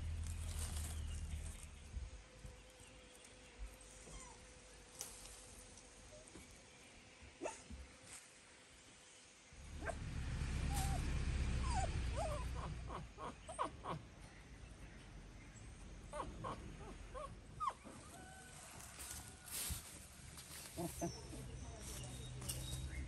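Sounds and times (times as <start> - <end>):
low rumble: 0.0 - 2.2, 9.6 - 13.2.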